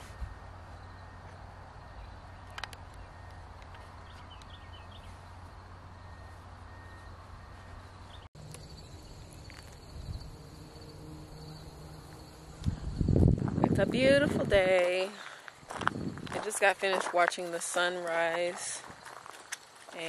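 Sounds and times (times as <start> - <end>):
low hum: 0.0 - 14.7
insects chirping: 0.0 - 20.0
high steady insect tone: 4.7 - 16.4.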